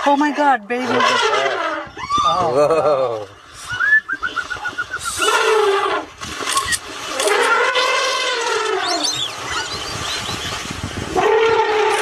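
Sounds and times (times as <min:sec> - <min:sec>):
elephant trumpeting: 0:00.8 - 0:01.9, 0:05.1 - 0:09.8, 0:11.1 - 0:12.0.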